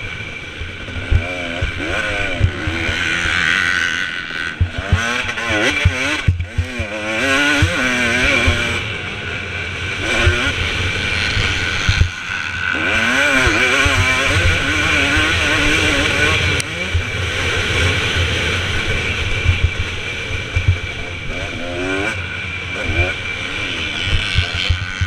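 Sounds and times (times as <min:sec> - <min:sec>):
motorcycle engine revving: 0:00.0 - 0:25.0
wind noise on microphone: 0:19.0 - 0:21.4.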